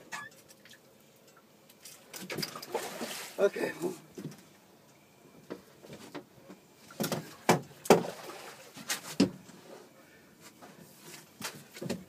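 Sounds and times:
knocks and clunks on boat: 0:06.9 - 0:08.2, 0:11.4 - 0:12.0.

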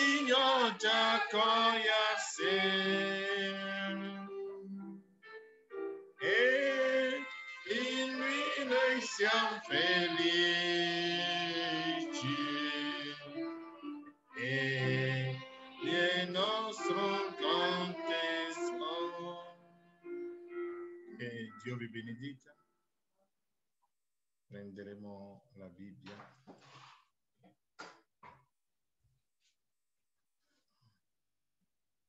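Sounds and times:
hymn singing with vibrato: 0:00.0 - 0:04.5, 0:06.2 - 0:13.7, 0:14.3 - 0:19.7.

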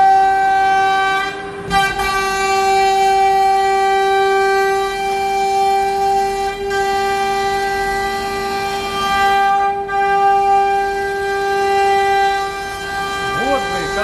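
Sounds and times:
cutter milling plywood: 0:09.9 - 0:14.0
router spindle whining: 0:10.9 - 0:14.0.

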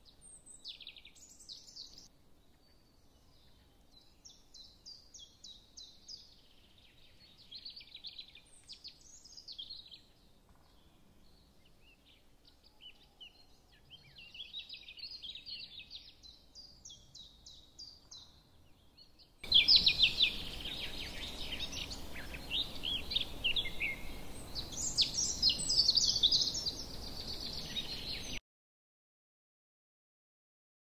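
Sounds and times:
small birds chirping and trilling: 0:00.0 - 0:28.4.

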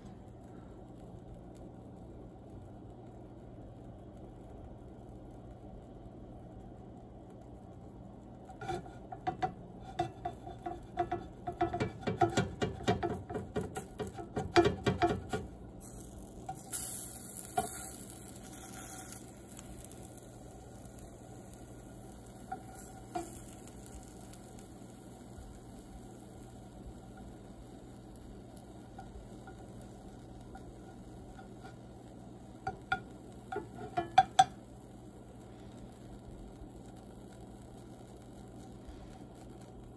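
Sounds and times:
spatula scraping frying pan: 0:08.5 - 0:19.6, 0:22.3 - 0:24.3, 0:32.6 - 0:34.5
hiss from pan: 0:08.5 - 0:39.9.

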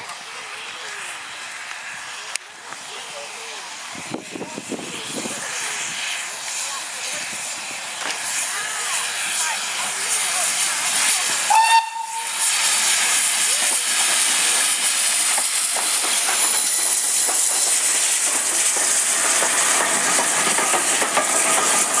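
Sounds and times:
hiss of escaping steam: 0:00.0 - 0:22.0
steam locomotive passing: 0:00.0 - 0:22.0
train whistle toot: 0:11.5 - 0:12.4.

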